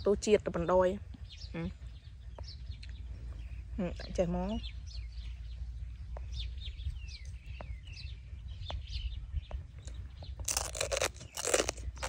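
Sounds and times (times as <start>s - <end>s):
small birds chirping: 0.0s - 12.0s
loud crunching chewing: 9.8s - 12.0s.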